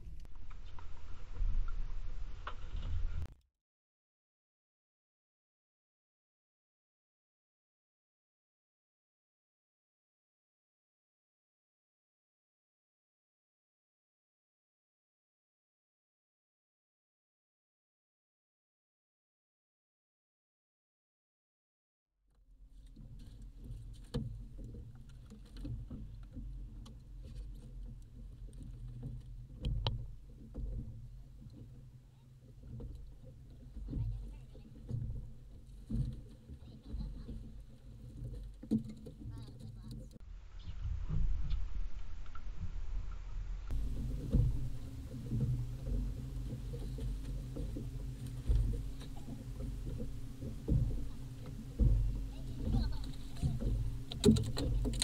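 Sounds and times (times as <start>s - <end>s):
wind rumble on microphone: 0.0s - 3.3s, 22.7s - 55.0s
waves lapping against boat hull: 22.6s - 40.2s, 40.8s - 55.0s
clicks and knocks on boat: 22.8s - 40.2s, 43.7s - 55.0s
heavy thumps: 43.7s - 55.0s.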